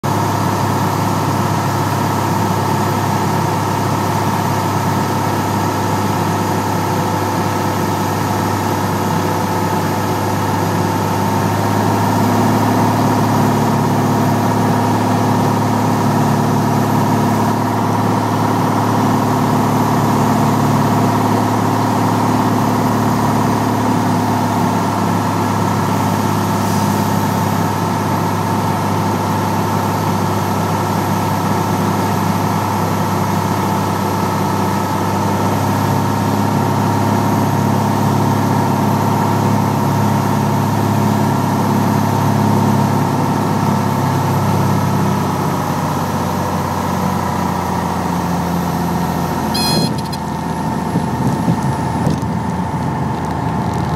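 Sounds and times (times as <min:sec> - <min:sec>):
propeller engine droning: 0:00.0 - 0:42.4, 0:45.4 - 0:53.9.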